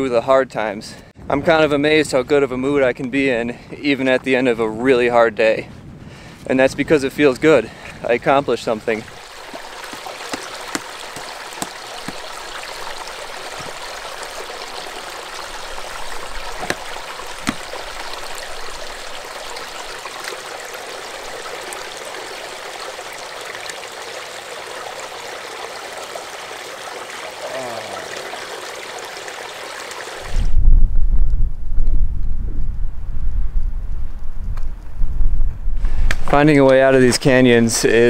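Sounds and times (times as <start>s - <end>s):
creek trickling over rocks: 6.3s - 30.5s, 36.0s - 38.0s.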